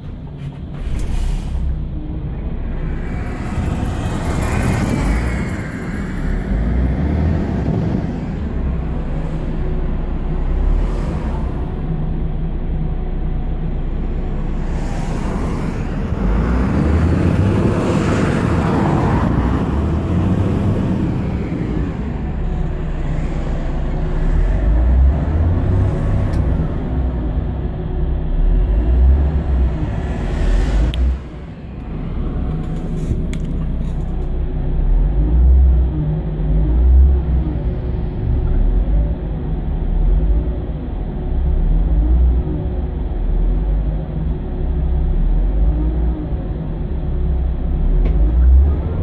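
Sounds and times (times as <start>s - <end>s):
diesel bus engine revving: 0.8s - 49.0s
car passing by: 2.6s - 11.9s, 14.4s - 27.6s, 28.5s - 34.0s.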